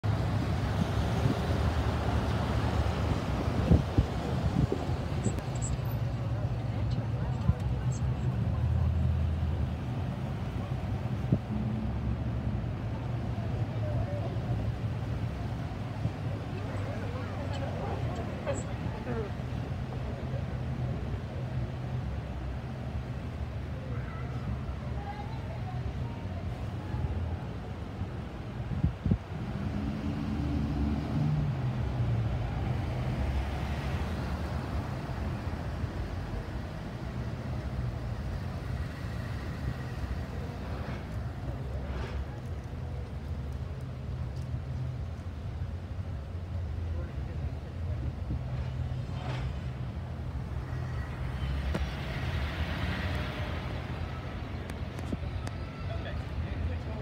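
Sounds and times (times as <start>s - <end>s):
car engine and road rumble: 0.0s - 57.0s
tyre hiss of passing vehicle: 26.5s - 43.3s, 47.9s - 56.7s.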